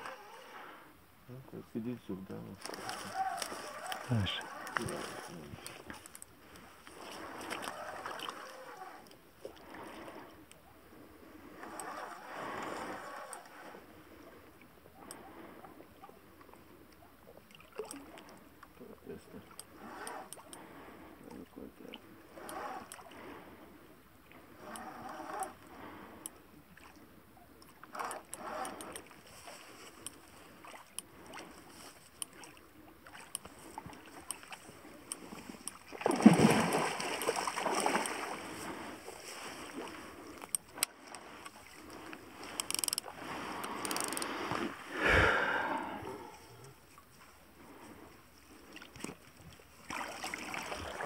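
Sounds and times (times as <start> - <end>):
fish splashing in water: 7.0 - 8.6, 35.7 - 38.6, 49.8 - 51.0.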